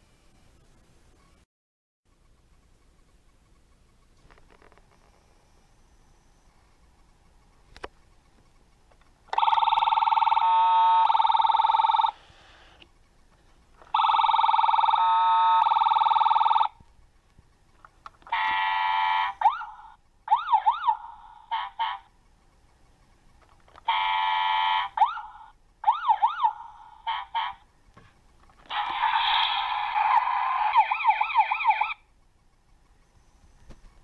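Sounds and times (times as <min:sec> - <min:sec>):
click: 0:07.7 - 0:09.4
toy electronic siren: 0:09.3 - 0:12.2, 0:13.8 - 0:16.8, 0:18.2 - 0:22.1, 0:23.8 - 0:27.7, 0:28.6 - 0:32.1.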